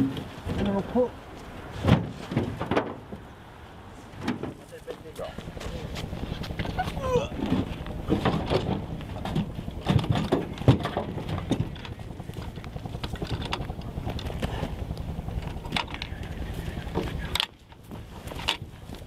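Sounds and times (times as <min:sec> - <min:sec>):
wind rumbling on microphone: 0:00.0 - 0:19.0
footsteps on gravel: 0:04.6 - 0:08.2
gear knocking: 0:05.4 - 0:19.0.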